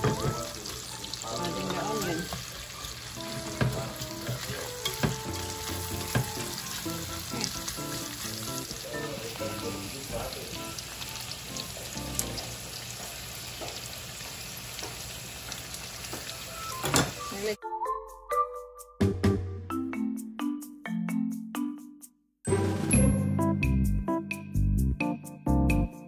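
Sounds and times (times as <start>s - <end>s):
bacon sizzling in a pan: 0.0s - 17.6s
spatula knocking against a pan: 3.4s - 6.6s.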